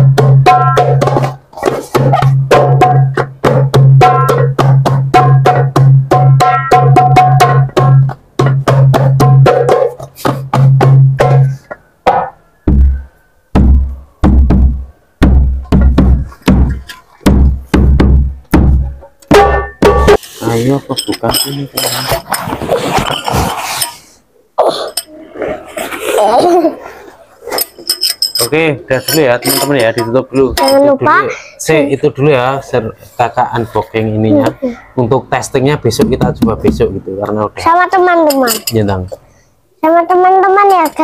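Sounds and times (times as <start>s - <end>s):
deep drum boom: 13.6s - 20.2s.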